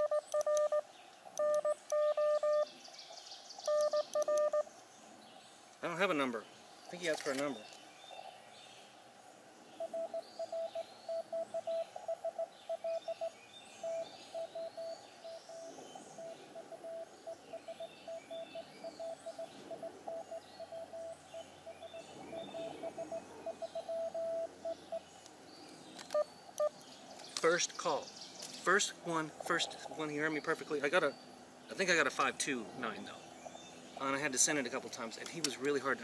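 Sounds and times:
morse code tone: 0:00.0 - 0:00.8, 0:01.4 - 0:02.7, 0:03.7 - 0:04.7, 0:09.8 - 0:25.0, 0:26.1 - 0:26.8
birds chirping: 0:00.0 - 0:36.0.

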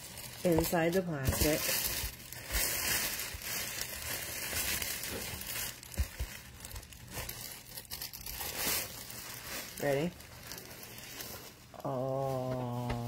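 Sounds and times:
plastic packaging crinkling: 0:00.0 - 0:12.5.

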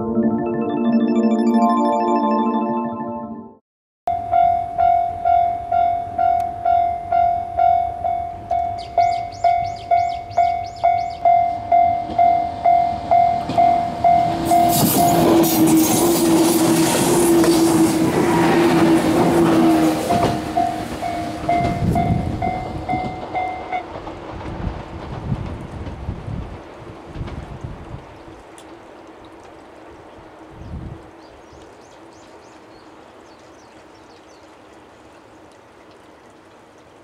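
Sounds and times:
level-crossing warning bell ringing: 0:04.1 - 0:15.4, 0:20.1 - 0:23.8
train hum: 0:04.6 - 0:28.1
train wheel-and-rail noise: 0:07.8 - 0:28.0.

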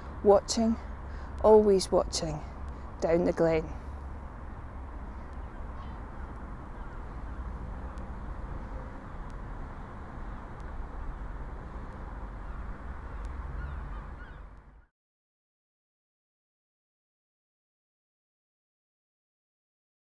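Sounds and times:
faint bird calls: 0:05.2 - 0:09.3, 0:12.3 - 0:14.9.

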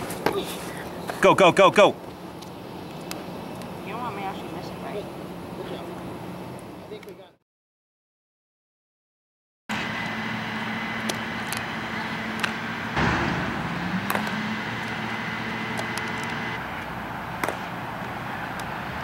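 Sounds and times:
distant traffic noise: 0:00.0 - 0:07.4, 0:09.7 - 0:19.0
softball hitting glove: 0:17.4 - 0:17.7.

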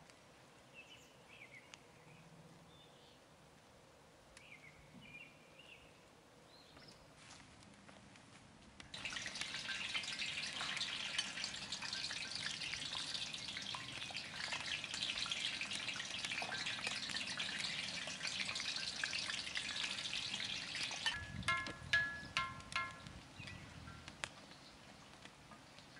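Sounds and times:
food sizzling in hot oil: 0:09.0 - 0:23.0.

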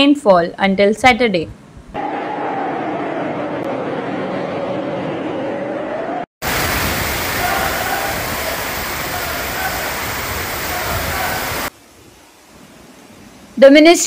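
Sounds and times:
storm noise: 0:02.0 - 0:11.8
floodwater rushing: 0:06.4 - 0:11.7
people shouting faintly: 0:07.2 - 0:11.7.

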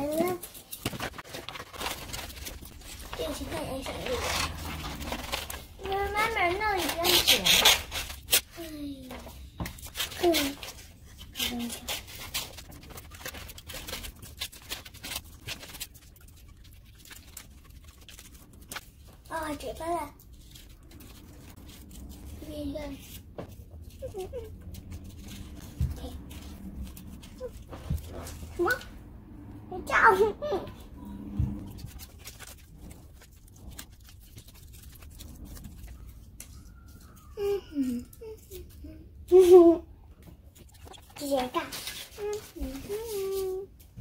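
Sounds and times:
scissors snipping paper: 0:00.0 - 0:19.6, 0:31.7 - 0:37.2.

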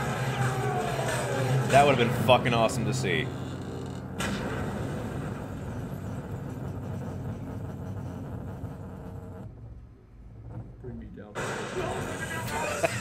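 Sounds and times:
low rumbling sound effect: 0:01.4 - 0:11.2.

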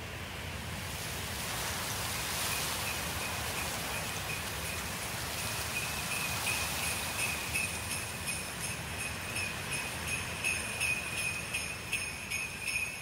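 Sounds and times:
steady rushing hiss: 0:00.0 - 0:13.0
small bells ringing: 0:05.4 - 0:13.0.

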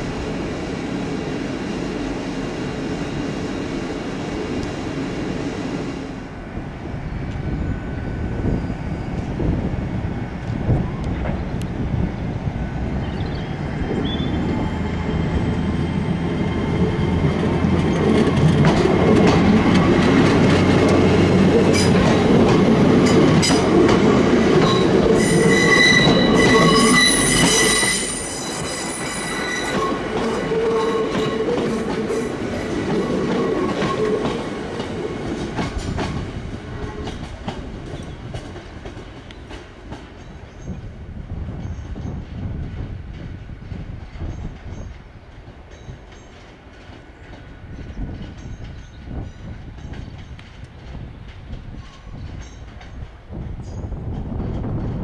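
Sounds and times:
train passing with wheel rumble: 0:00.0 - 0:55.0
high wheel squeal: 0:24.6 - 0:31.8.

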